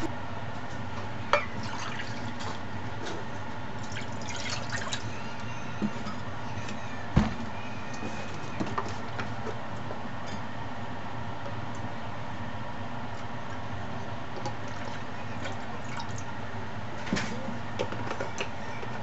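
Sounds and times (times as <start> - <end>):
dripping: 1.4 - 2.6, 3.8 - 5.1.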